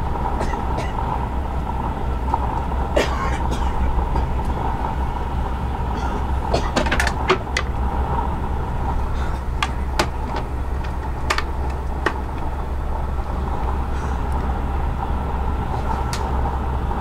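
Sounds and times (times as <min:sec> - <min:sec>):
constant hum: 0:00.0 - 0:17.0
train running gear rumble: 0:00.0 - 0:17.0
sharp clicks and creaks: 0:05.9 - 0:14.6.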